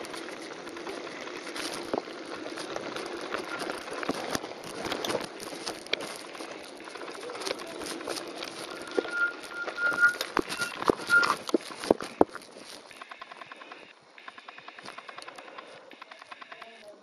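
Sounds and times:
bike rattling and knocking: 0.0s - 13.9s
tyres crunching on gravel: 0.0s - 14.0s
thin high squeal: 8.4s - 11.5s.

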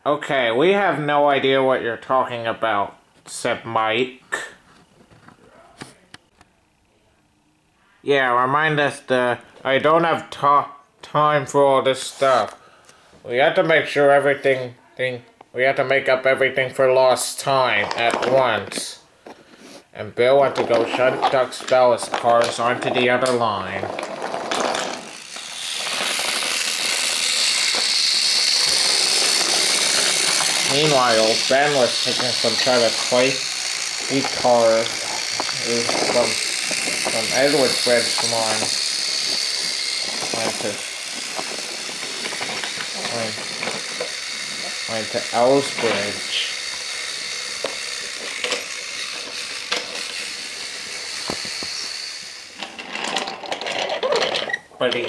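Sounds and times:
toy train wheels rattling on track: 20.4s - 55.0s.

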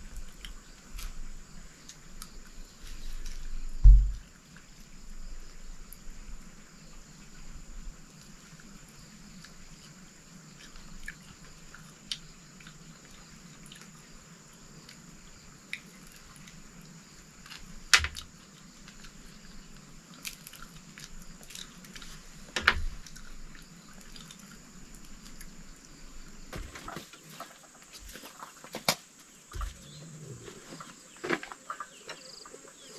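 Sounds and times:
sharp knocks: 3.8s - 4.2s
faint chewing: 17.5s - 26.0s.

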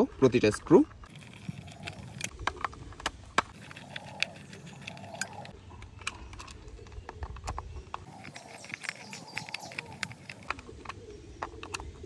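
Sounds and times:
screwdriver clicking and scraping: 0.9s - 12.0s.

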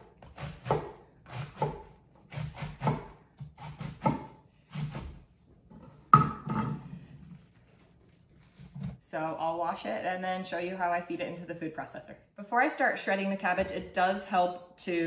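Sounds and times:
knife chopping on wooden board: 0.0s - 5.2s.

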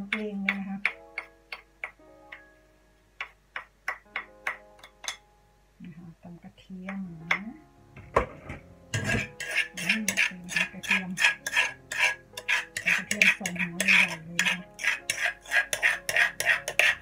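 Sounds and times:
metal spoon scraping clay mortar: 8.3s - 17.0s.

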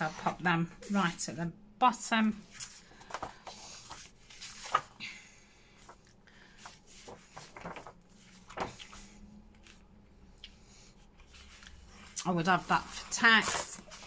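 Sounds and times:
paper pages rustling: 2.4s - 5.1s, 5.8s - 9.8s, 11.2s - 14.0s
paper flaps and taps: 7.0s - 9.0s.

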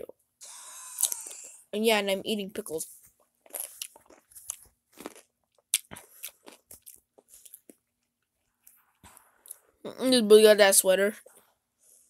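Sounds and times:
person chewing crunchy pickle: 3.4s - 8.0s.

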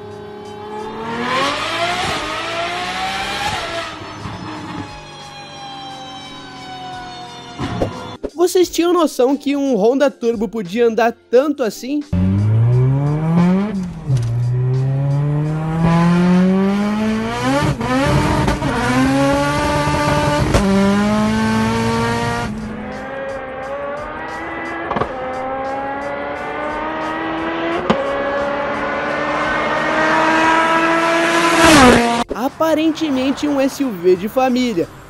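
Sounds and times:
car engine at full throttle: 0.0s - 8.2s, 12.2s - 32.3s.

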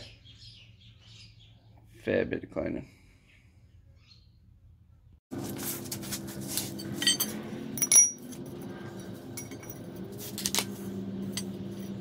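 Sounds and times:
steady low hum: 5.4s - 12.0s
metal pieces clinking: 6.8s - 8.4s.

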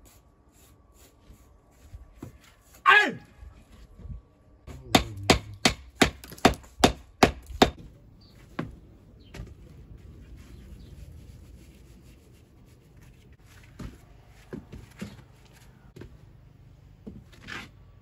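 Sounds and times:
hammer striking stone: 4.9s - 7.8s.

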